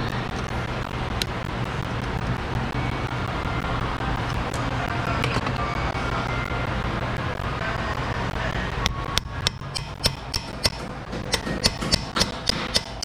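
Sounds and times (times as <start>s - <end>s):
low mechanical hum: 0.0s - 13.0s
pliers clicking on metal: 9.2s - 13.0s.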